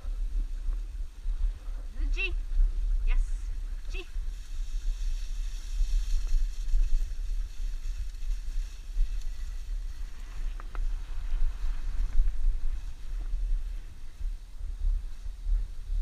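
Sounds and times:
sled runners on snow: 0.0s - 16.0s
wind on microphone: 0.0s - 16.0s
faint ticks: 9.0s - 9.6s.

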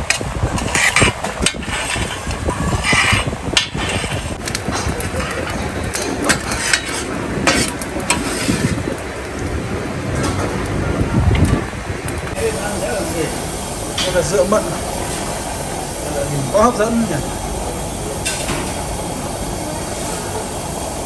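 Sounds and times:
busy restaurant din: 0.0s - 21.0s.

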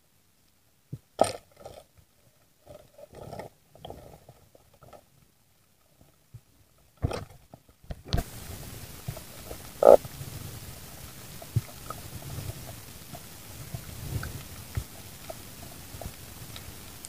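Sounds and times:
low underwater rumbling: 8.2s - 17.0s
croak-like burst: 9.8s - 10.0s.

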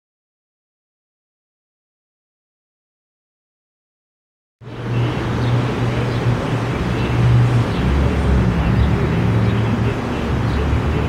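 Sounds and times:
low urban rumble with hum: 4.6s - 11.0s.

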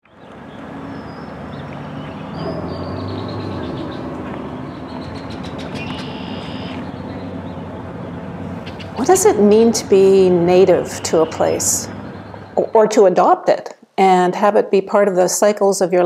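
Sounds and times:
distant traffic rumble: 0.0s - 16.0s
faint bird chirps: 1.0s - 7.3s.

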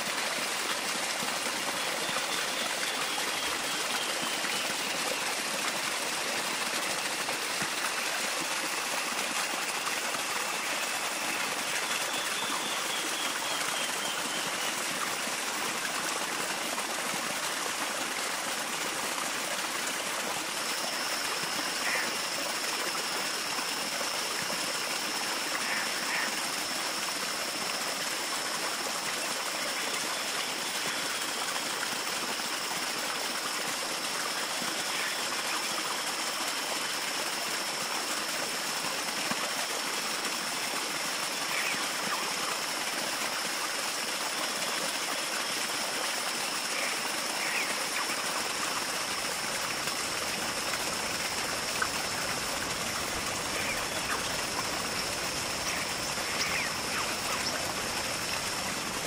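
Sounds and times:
running water: 0.0s - 59.0s
thin steady high tone: 46.4s - 59.0s.

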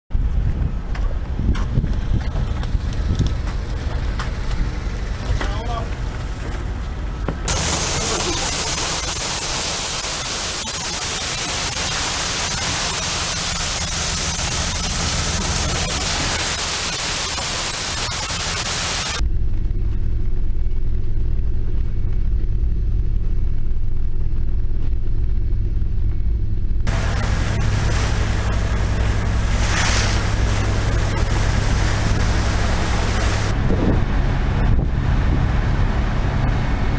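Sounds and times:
boat engine droning: 0.8s - 19.2s, 26.9s - 36.9s
crushed ice rushing down a chute: 7.5s - 19.2s.

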